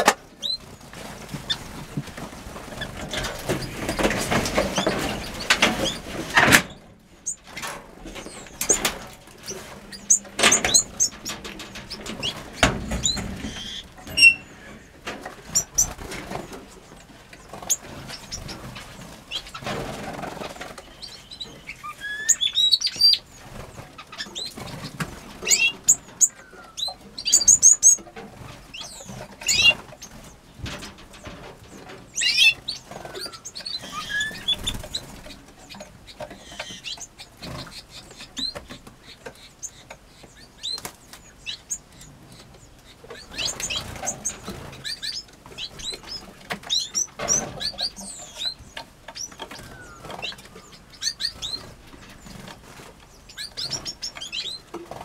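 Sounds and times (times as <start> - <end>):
birds fluttering wings: 0.0 - 38.9, 43.1 - 55.0.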